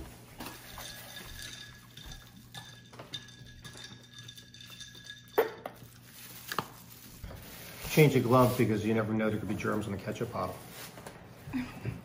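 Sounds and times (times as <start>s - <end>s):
tableware clinking: 0.4s - 6.0s.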